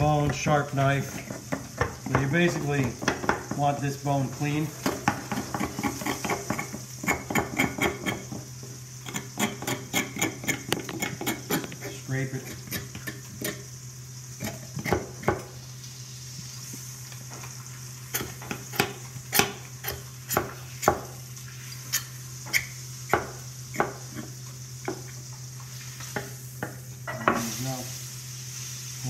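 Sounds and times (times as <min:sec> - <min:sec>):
knife scraping bone: 0:04.8 - 0:13.7.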